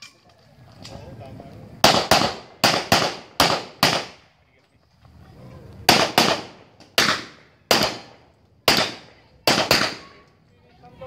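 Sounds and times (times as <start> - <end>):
gunshots with ringing tail: 5.9 - 10.1.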